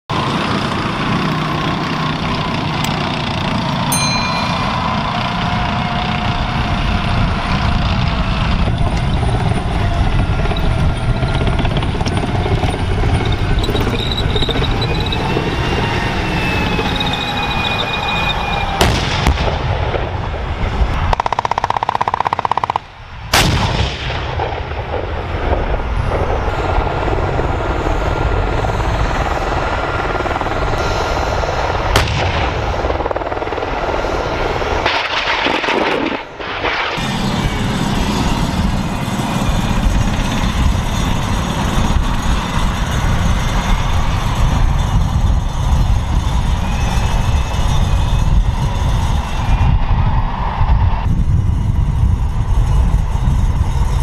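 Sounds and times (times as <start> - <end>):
tank engine rumble: 0.1 - 54.0
tank gunfire: 18.8 - 20.5, 21.1 - 25.8, 32.0 - 33.9.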